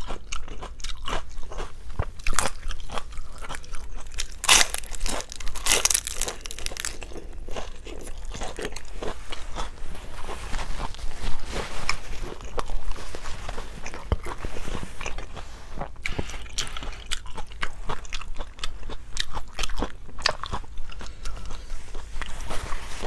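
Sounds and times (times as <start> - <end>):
chewing crunchy food: 0.0 - 23.0.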